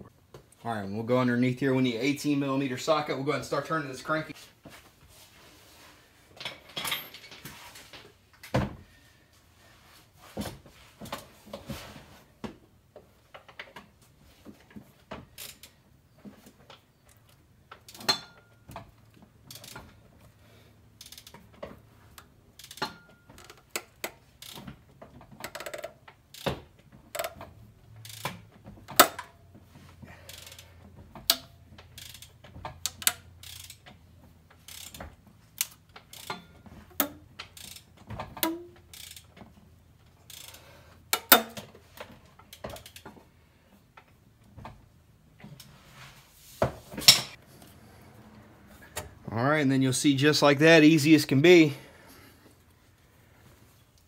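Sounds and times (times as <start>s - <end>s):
ratchet clicking and knocking: 15.3s - 15.8s, 16.7s - 20.1s, 20.9s - 29.4s, 30.2s - 43.2s.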